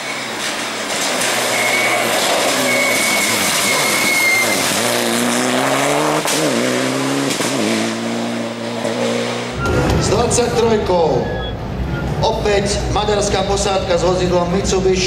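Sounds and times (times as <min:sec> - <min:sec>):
rally car engine at full throttle: 0:00.0 - 0:15.0.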